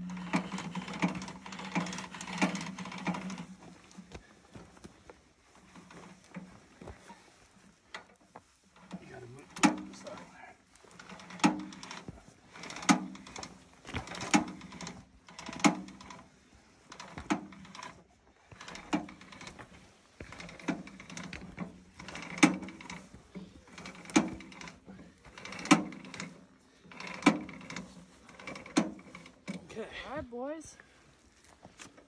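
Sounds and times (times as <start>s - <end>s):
hand winch ratchet rattling: 0.0s - 4.1s, 8.8s - 19.6s, 20.2s - 29.7s.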